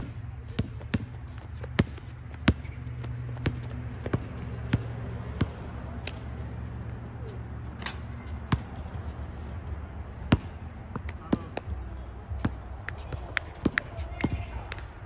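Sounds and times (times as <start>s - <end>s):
basketball bouncing: 0.0s - 6.2s, 7.7s - 8.9s, 10.2s - 11.6s.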